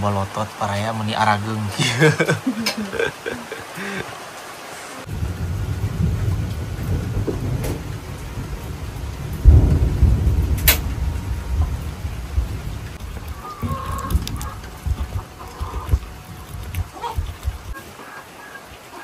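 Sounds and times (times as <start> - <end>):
steady rain: 0.0 - 19.0
thunder rumbling: 5.0 - 17.8.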